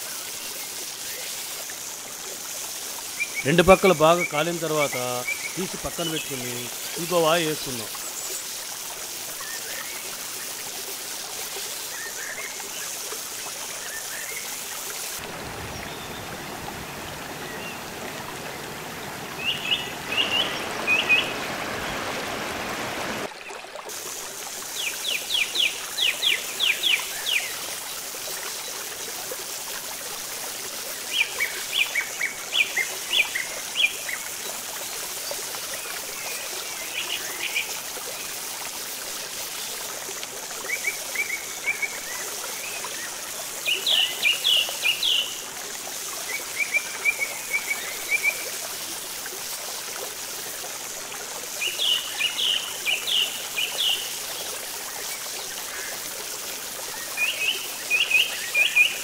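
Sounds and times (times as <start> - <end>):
bird chirping: 19.4 - 21.4.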